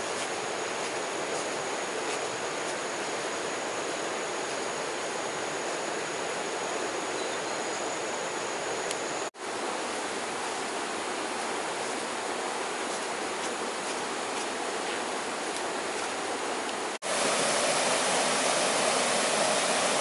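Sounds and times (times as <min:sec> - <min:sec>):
faint high whine: 0:00.0 - 0:09.3, 0:17.0 - 0:20.0
running water rushing: 0:08.0 - 0:20.0.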